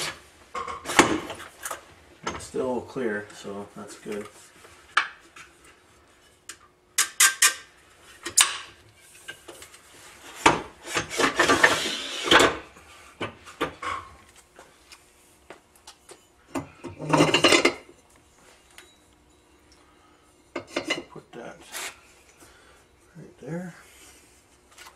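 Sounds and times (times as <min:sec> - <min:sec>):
metal hardware clinking and scraping: 0:16.9 - 0:17.9.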